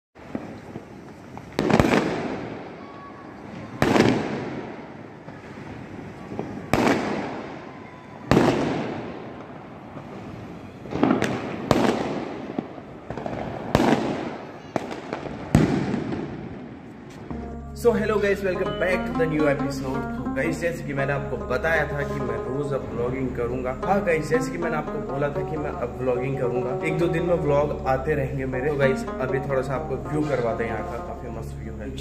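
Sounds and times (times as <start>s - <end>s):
fireworks bangs with rolling echo: 0.2s - 17.0s
fireworks crackling: 0.2s - 17.3s.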